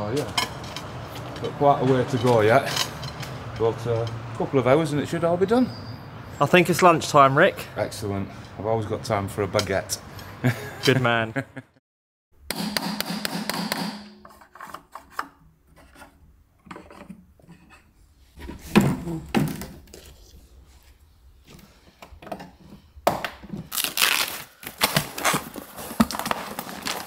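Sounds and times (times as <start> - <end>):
cardboard tearing: 23.6 - 27.0.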